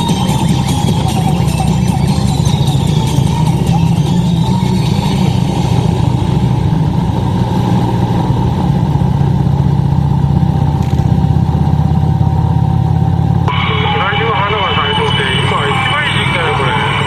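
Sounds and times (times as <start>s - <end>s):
motorcycle engine cruising: 0.0s - 17.0s
wind rush: 1.0s - 10.7s.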